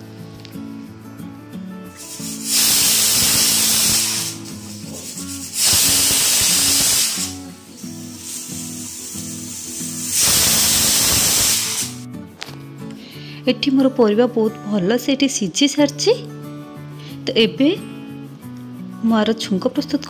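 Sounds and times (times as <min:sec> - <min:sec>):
background music: 0:00.0 - 0:20.0
pressure cooker steam hissing: 0:02.0 - 0:12.0.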